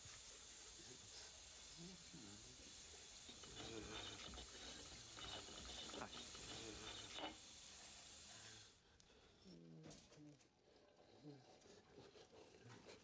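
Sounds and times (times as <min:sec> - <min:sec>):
water running from tap: 0:02.4 - 0:08.7.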